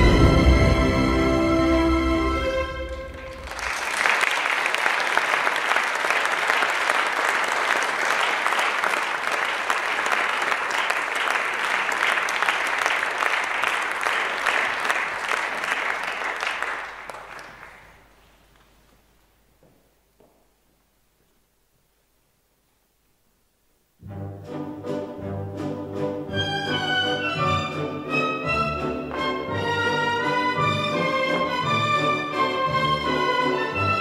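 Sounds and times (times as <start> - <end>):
music: 0.0 - 3.4, 24.0 - 34.0
audience applauding: 2.8 - 18.5.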